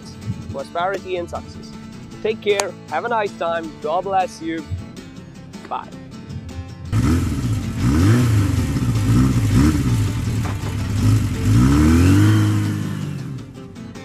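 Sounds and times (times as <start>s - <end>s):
motorcycle engine revving: 6.9s - 13.7s.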